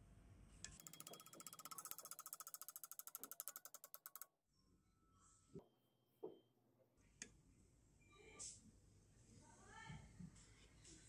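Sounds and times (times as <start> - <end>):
rapid ratchet-like clicks: 0.7 - 4.3.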